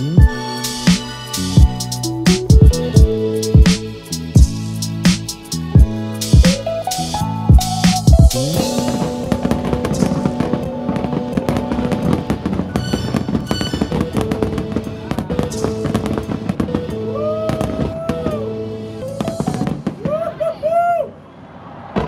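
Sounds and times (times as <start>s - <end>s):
music: 0.0s - 19.9s
fireworks bangs and crackling: 7.6s - 20.9s.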